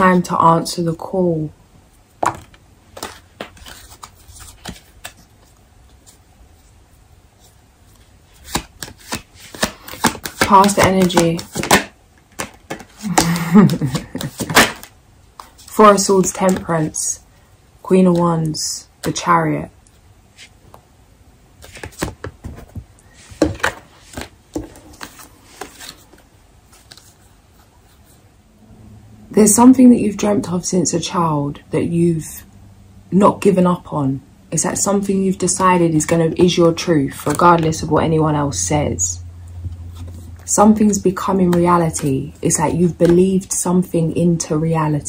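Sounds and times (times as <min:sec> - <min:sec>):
cards being shuffled: 0:02.2 - 0:06.7, 0:07.4 - 0:17.0, 0:21.6 - 0:28.2, 0:35.6 - 0:37.8, 0:39.9 - 0:43.6
paper rustling: 0:02.4 - 0:06.8, 0:07.4 - 0:16.9, 0:21.6 - 0:28.2
card snaps: 0:08.5 - 0:15.5.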